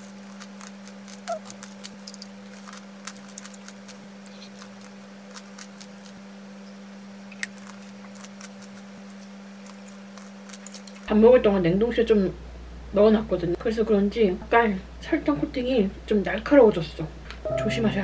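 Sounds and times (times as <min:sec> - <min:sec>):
sugar shell crunching while chewing: 0:00.0 - 0:11.1
steady low hum: 0:00.0 - 0:18.0.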